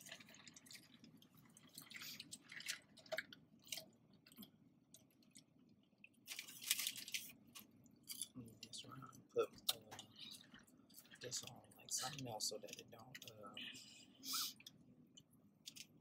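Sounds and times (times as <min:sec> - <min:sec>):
chewing food: 0:00.0 - 0:13.4.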